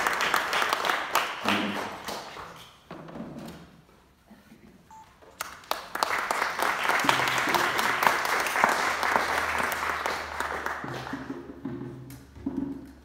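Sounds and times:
small audience applauding: 0.0 - 2.6, 5.4 - 11.6.

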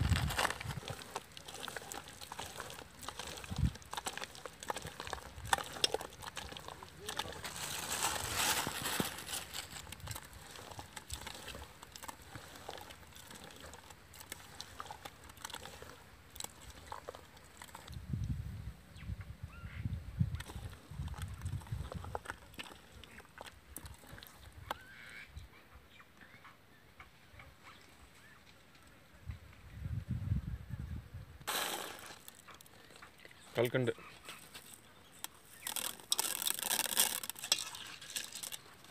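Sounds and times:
hand squishing mashed banana: 0.0 - 18.0.

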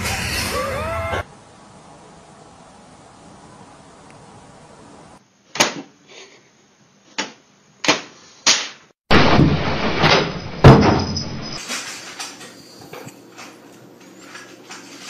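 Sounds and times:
loud noise: 0.0 - 1.3, 9.1 - 11.6
loud bang: 9.1 - 11.6.

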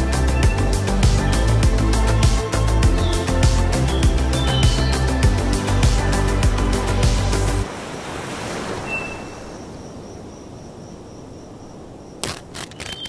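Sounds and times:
background music: 0.0 - 7.6
surf: 0.0 - 11.2
wind: 0.0 - 13.0
rubbing and scraping: 12.2 - 13.0.

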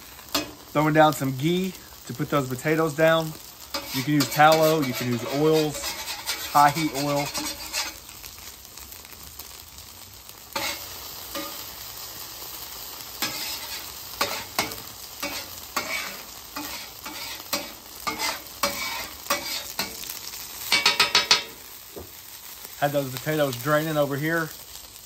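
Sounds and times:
food sizzling on griddle: 0.0 - 25.0
metal spatula scraping griddle: 2.8 - 8.1, 10.5 - 12.0, 13.2 - 21.7.

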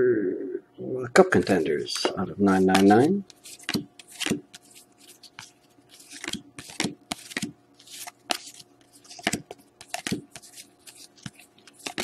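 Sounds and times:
cards sliding papery swishes: 2.7 - 12.0.

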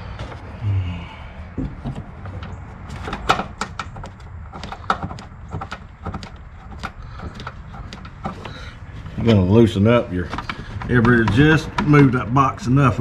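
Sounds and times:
plastic clicks and knocks: 1.6 - 8.6, 10.3 - 12.1.

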